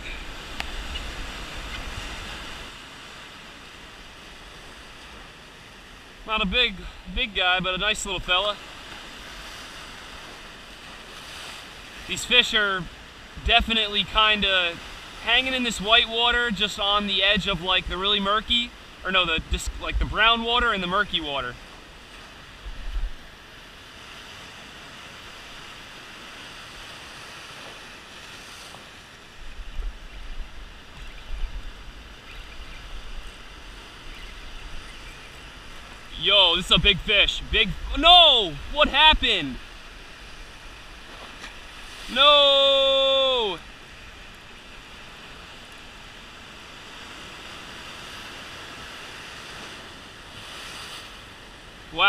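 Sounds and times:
surf breaking on rocks: 0.0 - 23.2, 32.9 - 52.0
wind buffeting microphone: 19.4 - 20.4.

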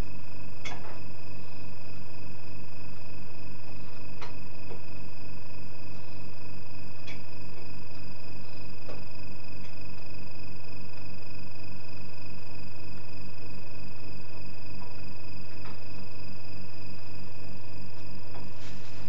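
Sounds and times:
electrical hum and buzz: 0.0 - 19.0.

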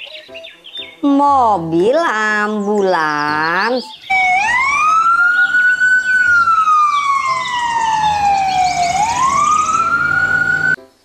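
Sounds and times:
ambulance siren wailing: 4.0 - 10.8.

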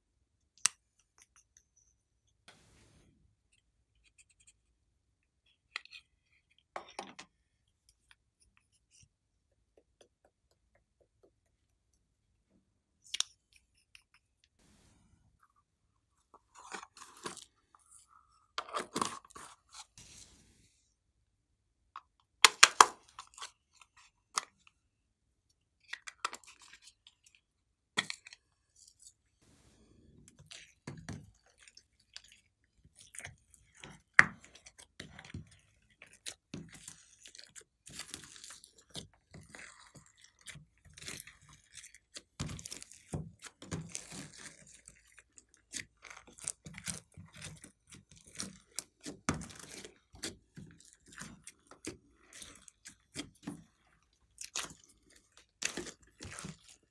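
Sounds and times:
slime squishing and crackling: 30.4 - 56.9.

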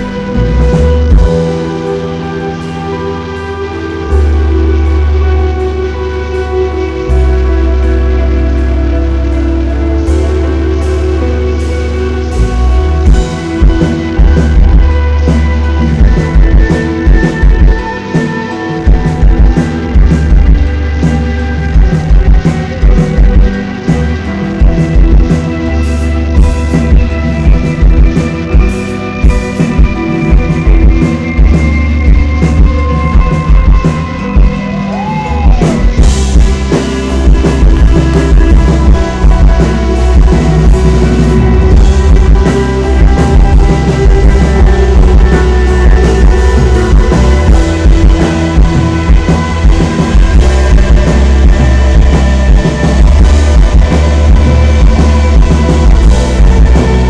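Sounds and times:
live rock band playing: 0.0 - 57.0.

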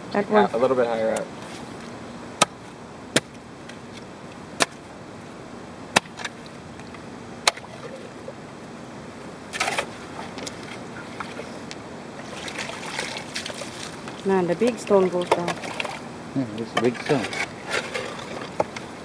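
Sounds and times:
shovel crunching scrape: 9.5 - 10.0, 16.8 - 18.5.

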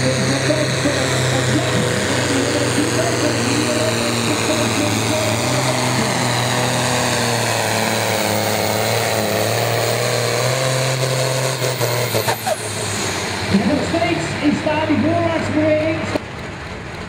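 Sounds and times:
tractor diesel engine droning: 0.0 - 17.0.

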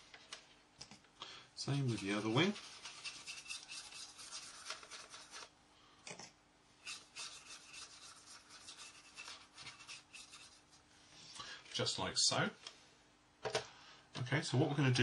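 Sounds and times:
paintbrush scrubbing plastic: 1.6 - 5.5, 6.8 - 10.8.

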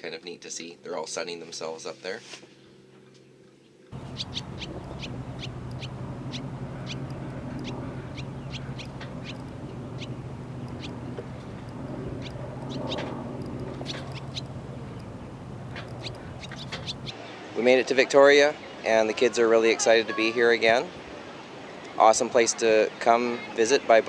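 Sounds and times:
steady low hum: 3.9 - 18.8
swallows chirping: 4.0 - 22.0.

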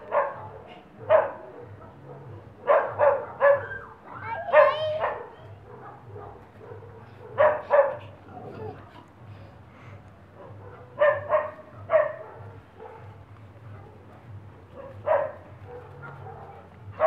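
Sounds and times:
puppy barking: 0.0 - 8.9, 10.4 - 17.0
puppy wavering high cry: 3.1 - 5.3.

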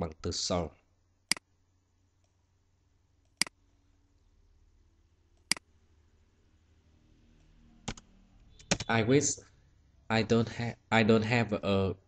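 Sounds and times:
computer mouse clicks: 7.8 - 8.9.

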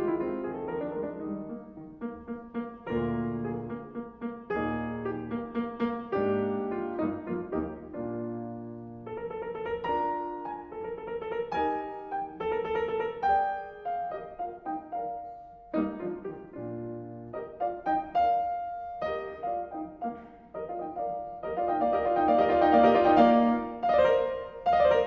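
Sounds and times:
gentle piano music: 0.0 - 25.0.

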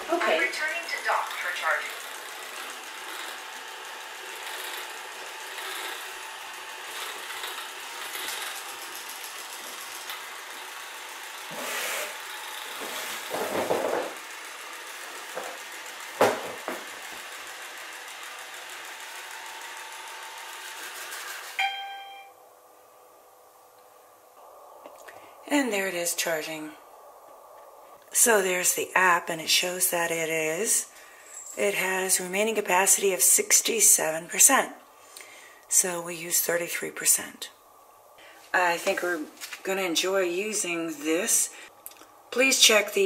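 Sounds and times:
robot vacuum running: 0.0 - 21.6
knocks: 16.2 - 16.9
brief electronic tone: 21.6 - 22.4.

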